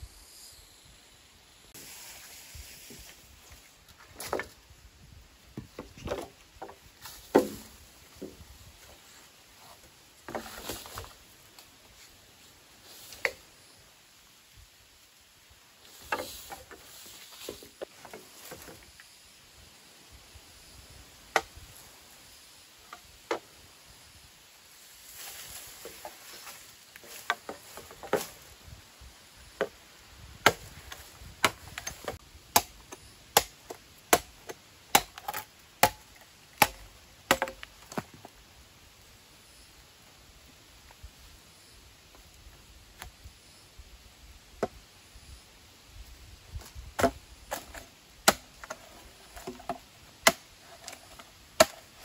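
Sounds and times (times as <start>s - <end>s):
machete chopping: 7.2s - 8.3s, 30.4s - 38.0s, 47.0s - 48.8s, 49.4s - 51.0s, 51.6s - 52.0s.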